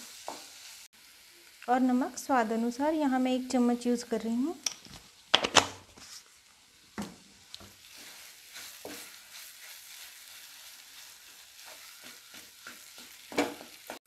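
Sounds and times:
faint sizzle: 0.0s - 14.0s
wooden spatula scraping a pan: 7.0s - 14.0s.

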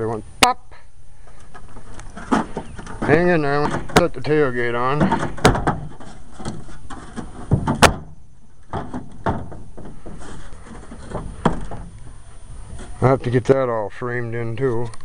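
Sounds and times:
metal tailgate clunking: 2.1s - 12.0s.

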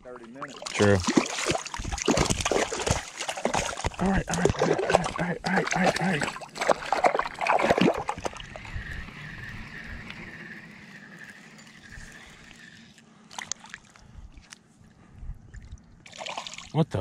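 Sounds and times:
water sloshing: 0.2s - 14.7s
fishing reel whirring: 6.8s - 13.6s.

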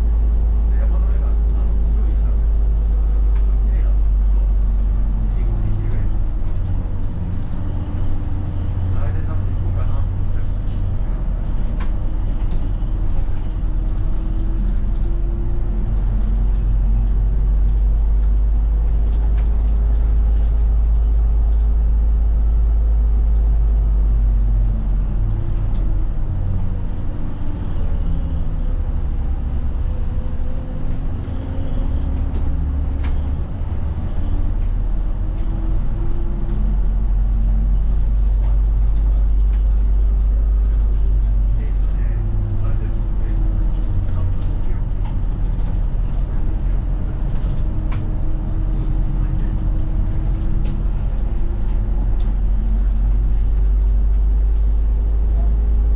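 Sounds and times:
bus engine and road rumble: 0.0s - 55.9s.

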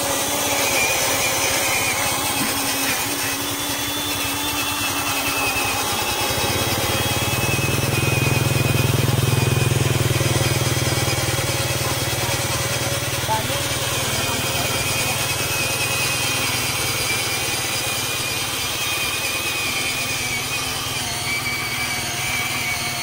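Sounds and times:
electric motor whine: 0.0s - 23.0s
motorcycle engine passing: 6.4s - 13.8s.

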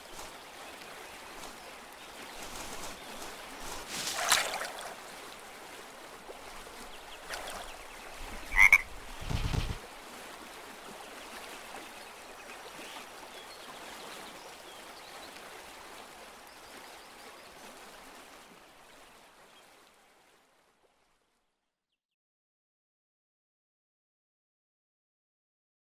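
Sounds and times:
stream and forest ambience: 0.0s - 22.0s
frogs croaking: 8.3s - 9.8s.

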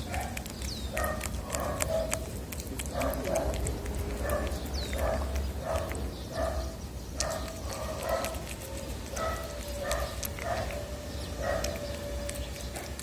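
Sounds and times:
cat chewing wet food: 0.0s - 13.0s.

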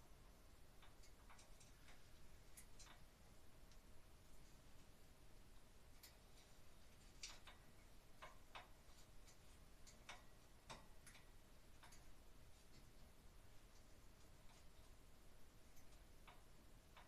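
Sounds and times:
small hardware clicking and tapping: 0.7s - 3.1s, 5.6s - 15.0s, 15.6s - 17.0s.

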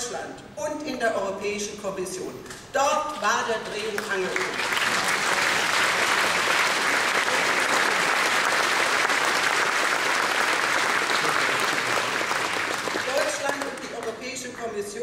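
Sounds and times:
audience applauding: 4.0s - 13.9s.

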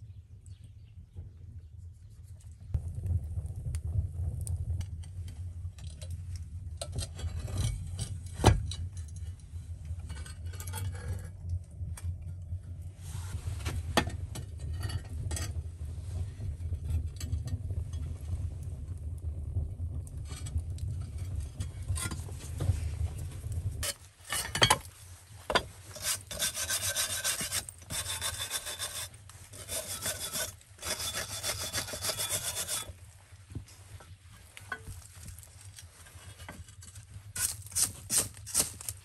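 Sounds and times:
steady low rumble: 0.0s - 26.1s
metal clinks and scrapes: 6.8s - 11.4s, 23.8s - 33.0s, 33.9s - 39.0s.

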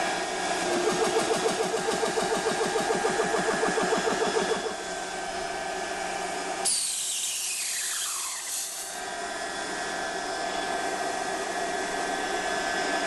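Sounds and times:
cooling fans humming: 0.0s - 6.9s, 7.5s - 13.0s
air compressor pump beating: 0.0s - 13.0s
compressed air hissing out: 6.6s - 9.0s.

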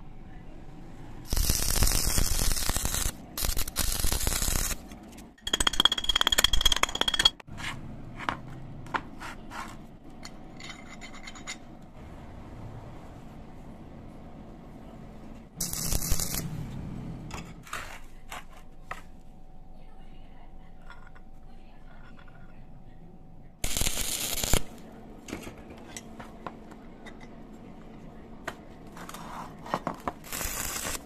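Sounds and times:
arc welding crackle: 1.2s - 4.8s, 15.6s - 16.6s, 23.6s - 24.8s, 30.2s - 31.0s.

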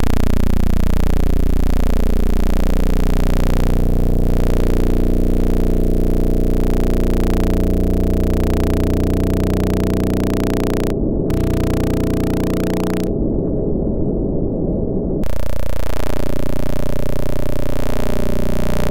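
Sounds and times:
low layered synth drone: 0.0s - 13.1s.

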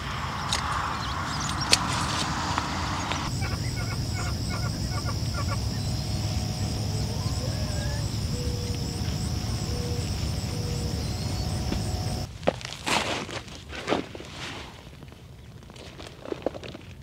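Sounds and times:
bird chirps: 0.0s - 12.3s
high thin whine: 0.0s - 12.3s
wind rumble on microphone: 0.0s - 12.3s.

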